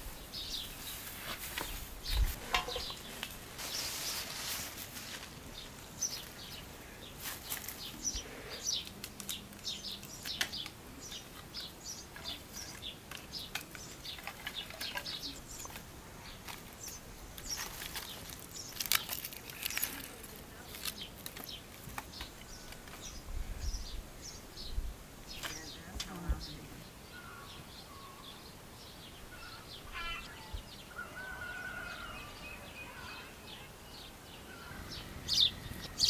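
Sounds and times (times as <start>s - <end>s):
dry grass and twigs rustling: 0.0s - 24.0s
small birds chirping: 0.0s - 36.0s.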